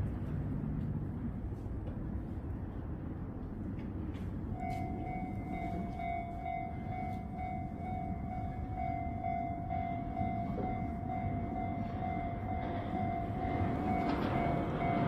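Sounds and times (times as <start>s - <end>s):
level-crossing warning bell: 4.5s - 15.0s.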